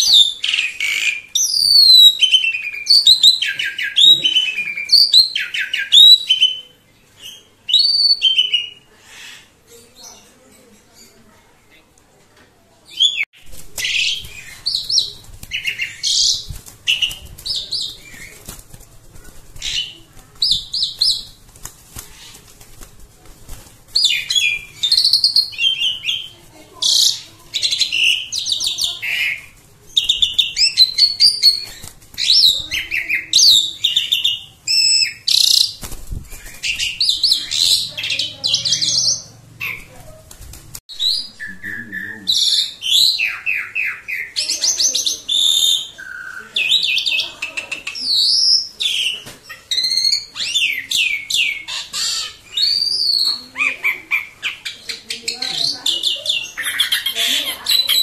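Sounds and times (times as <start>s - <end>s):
starling singing: 12.9s - 18.6s, 23.9s - 40.2s, 40.9s - 58.0s.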